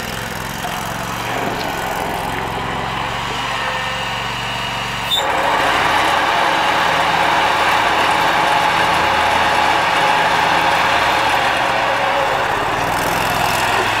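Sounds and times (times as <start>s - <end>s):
lawn mower running: 0.0s - 14.0s.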